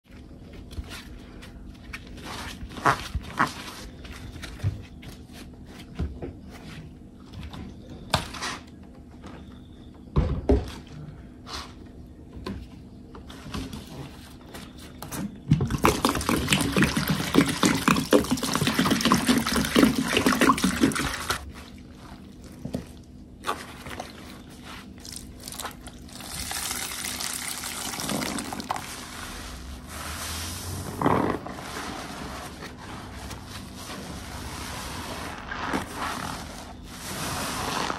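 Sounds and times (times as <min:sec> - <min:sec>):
wet sponge squelching: 0:15.8 - 0:37.9.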